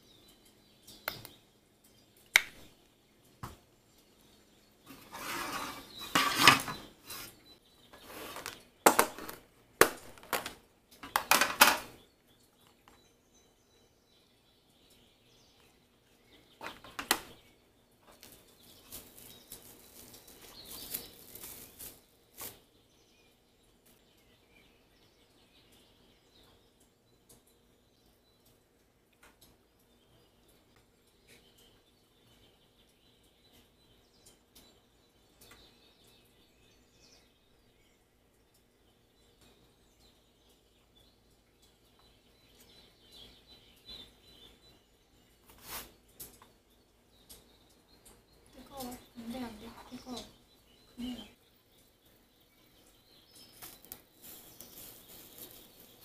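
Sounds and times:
sauce packets rustling: 0:18.1 - 0:22.6, 0:53.4 - 0:56.0.

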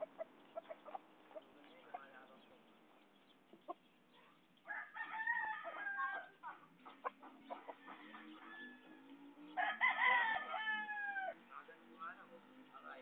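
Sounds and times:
roosters crowing: 0:04.6 - 0:11.6.

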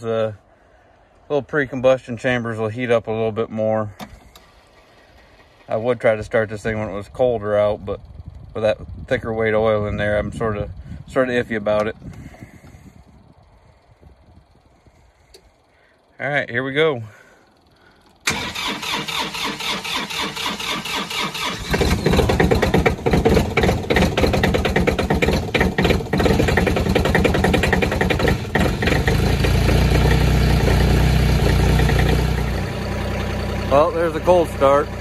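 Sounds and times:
diesel tractor engine running: 0:01.1 - 0:16.1, 0:17.4 - 0:35.0
starter motor cranking: 0:18.1 - 0:30.0.

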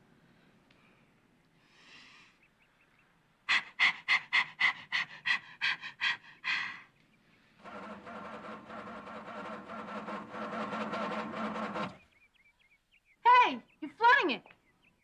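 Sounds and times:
woman panting: 0:03.5 - 0:06.9.

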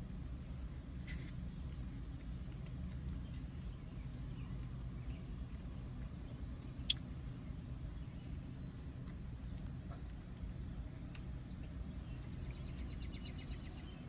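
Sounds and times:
low outdoor rumble: 0:00.0 - 0:14.0
eating sounds: 0:01.0 - 0:07.6
faint bird chirps: 0:03.2 - 0:10.0, 0:11.2 - 0:14.0.

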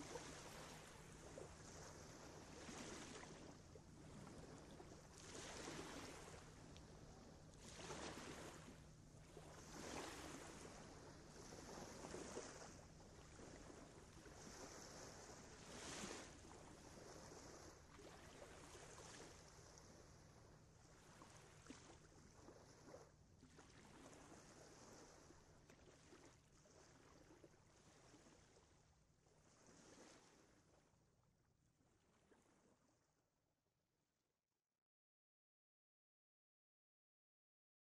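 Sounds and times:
lake waves washing: 0:00.0 - 0:06.6, 0:07.6 - 0:08.7, 0:09.6 - 0:12.7.

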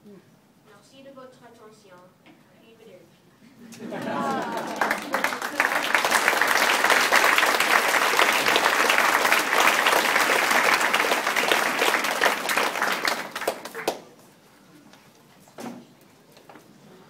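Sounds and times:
audience applauding: 0:03.9 - 0:14.2.

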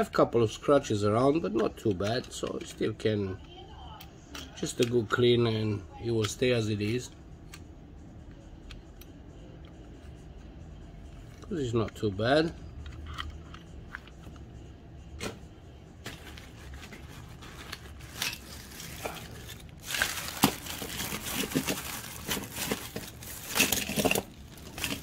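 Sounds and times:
rustling and crinkling: 0:16.0 - 0:25.0.

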